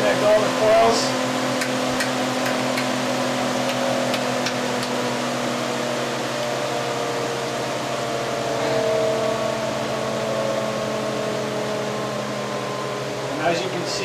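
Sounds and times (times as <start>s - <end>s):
motor and generator humming: 0.0s - 14.0s
sharp clicks: 1.6s - 2.9s.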